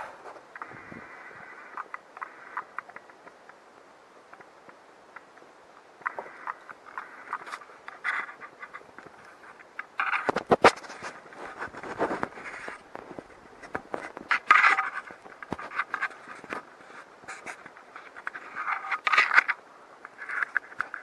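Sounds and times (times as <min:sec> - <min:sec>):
scraping and rubbing: 0:06.0 - 0:21.0.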